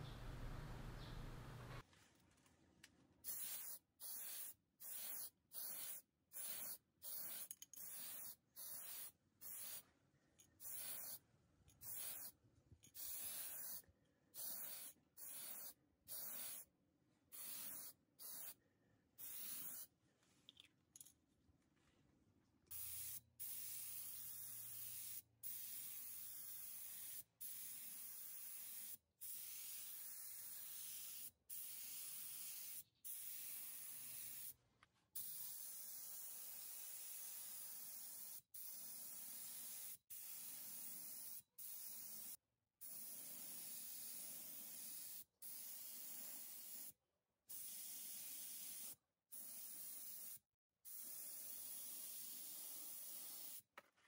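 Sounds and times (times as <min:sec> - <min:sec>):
paint spray gun hissing: 0:03.3 - 0:09.8, 0:10.6 - 0:11.2, 0:13.0 - 0:13.8, 0:19.2 - 0:19.9, 0:22.7 - 0:34.5.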